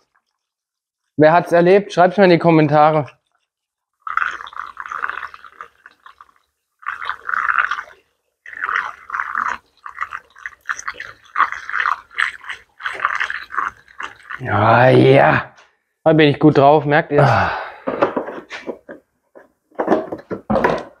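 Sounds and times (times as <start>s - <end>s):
fuel pouring into tank: 4.0s - 14.9s.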